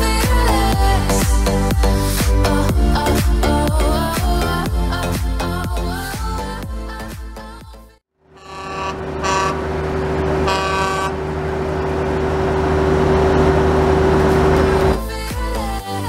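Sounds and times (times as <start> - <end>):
car horns honking: 8.3 - 11.6.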